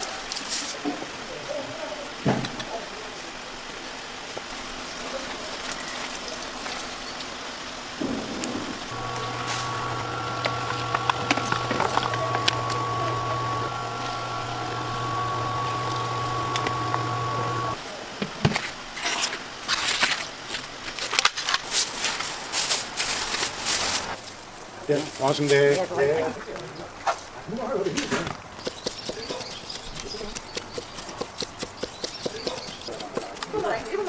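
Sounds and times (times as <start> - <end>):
slicing machine motor whining: 8.9 - 17.8.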